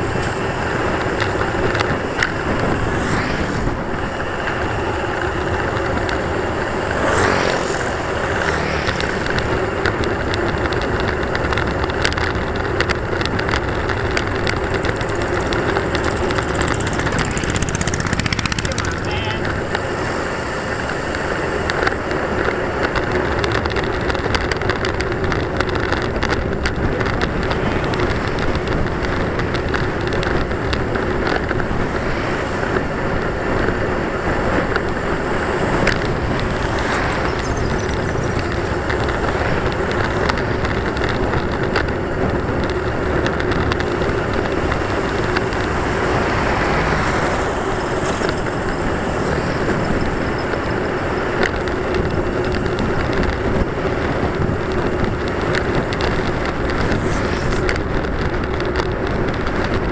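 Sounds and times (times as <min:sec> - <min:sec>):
truck passing: 0:00.0 - 0:24.4, 0:26.5 - 0:59.9
road noise: 0:00.0 - 0:59.9
wind noise: 0:00.0 - 0:59.9
small rattles: 0:04.4 - 0:20.0.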